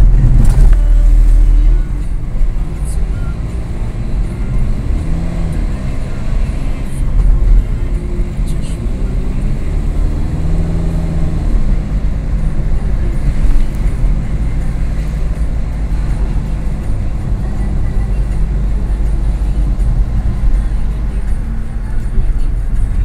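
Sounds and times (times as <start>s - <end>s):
car engine hum: 0.0s - 23.0s
road noise inside car: 0.0s - 23.0s.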